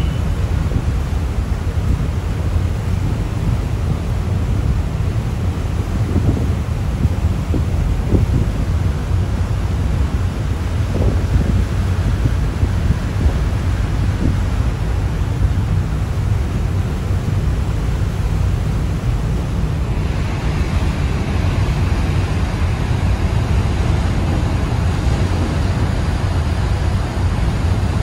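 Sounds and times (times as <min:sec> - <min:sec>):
deep engine rumble: 0:00.0 - 0:28.0
hiss of churning wake water: 0:00.0 - 0:28.0
rushing water: 0:00.0 - 0:28.0
wind buffeting microphone: 0:00.0 - 0:28.0.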